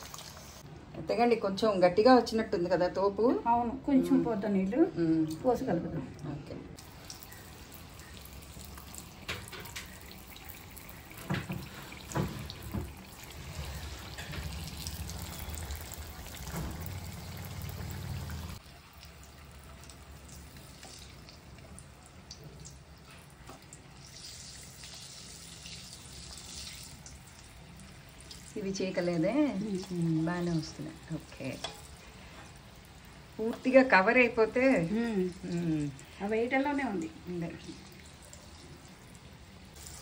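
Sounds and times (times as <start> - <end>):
hot oil sizzling and bubbling: 0.0 - 0.7, 6.8 - 40.0.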